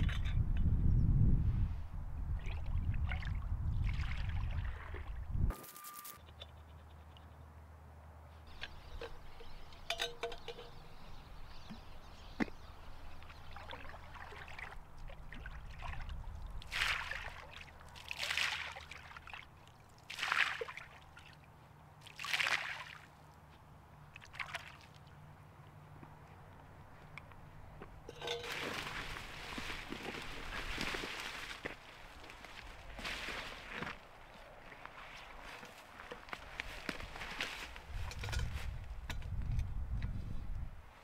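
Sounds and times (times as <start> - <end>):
water sloshing and splashing: 2.4 - 5.3, 13.2 - 21.4, 22.0 - 23.1, 24.2 - 25.1, 28.1 - 36.2
metal cups clinking: 8.6 - 10.9, 28.1 - 28.9.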